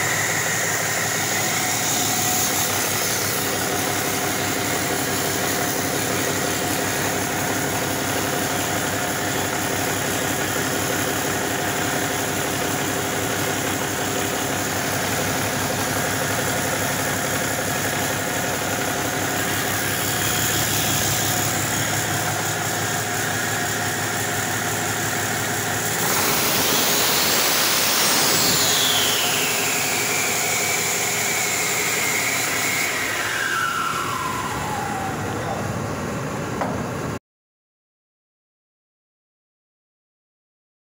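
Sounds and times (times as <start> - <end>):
turbocharger whine: 0.0 - 37.2
diesel engine idling: 2.8 - 26.0.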